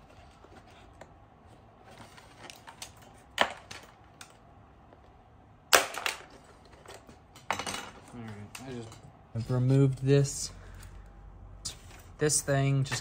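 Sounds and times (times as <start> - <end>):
plastic parts clicking and snapping: 2.4 - 4.4.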